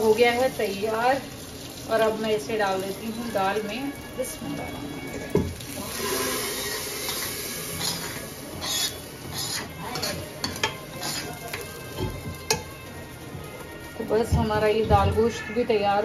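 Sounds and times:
hot oil sizzling: 0:00.0 - 0:16.0
metal spoon scraping a pan: 0:05.9 - 0:12.7.

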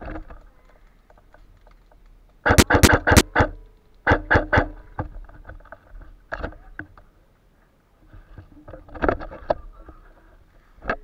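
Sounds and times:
airsoft gun firing bursts: 0:02.4 - 0:04.7.

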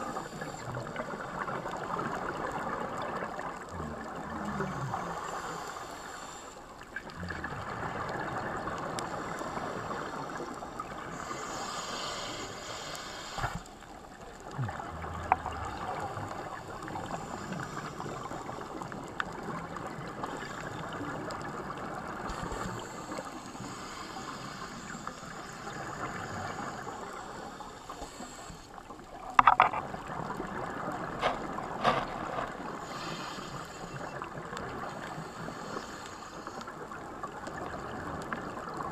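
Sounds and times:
underwater rushing water: 0:00.0 - 0:38.9
sharp clicks or knocks: 0:29.4 - 0:29.8.

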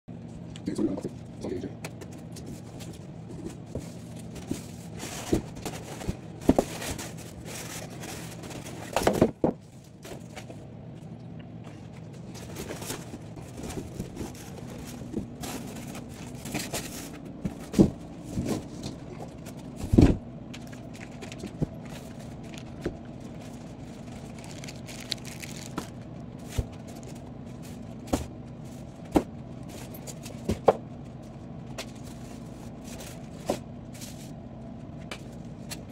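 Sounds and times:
foam and plastic wrap handled: 0:02.6 - 0:10.6, 0:12.2 - 0:19.8, 0:20.7 - 0:29.0.

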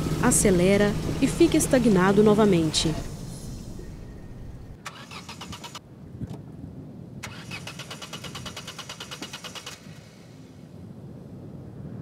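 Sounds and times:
car engine cranking: 0:00.0 - 0:05.8, 0:07.2 - 0:10.0.

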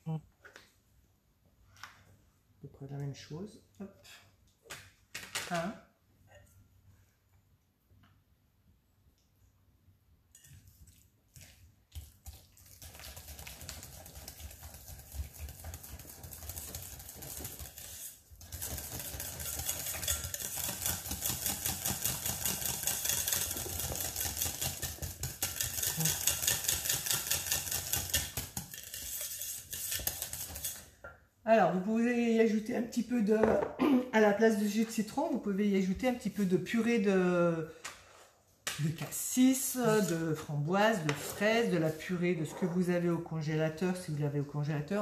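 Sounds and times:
whisk scraping a metal bowl: 0:12.8 - 0:30.9.

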